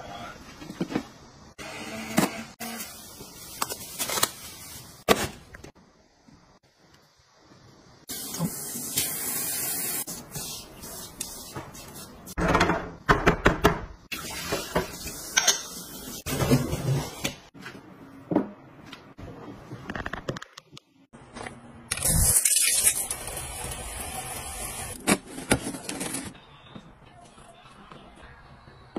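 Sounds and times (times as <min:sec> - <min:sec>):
dishes clinking in a metal sink: 0:14.4 - 0:16.8
water running from a tap: 0:22.7 - 0:25.0.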